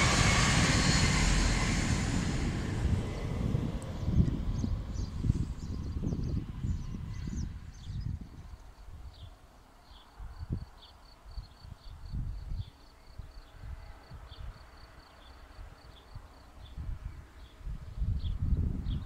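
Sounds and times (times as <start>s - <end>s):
wind buffeting microphone: 0.0s - 9.3s, 16.6s - 19.0s.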